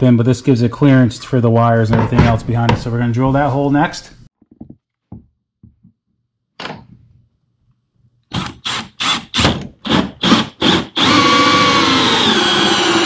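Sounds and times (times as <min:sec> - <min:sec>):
cordless drill bursts: 0:08.3 - 0:13.0.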